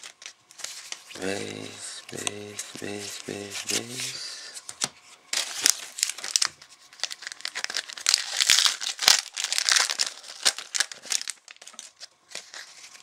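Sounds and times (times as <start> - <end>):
wrapper crinkling: 5.3 - 13.0.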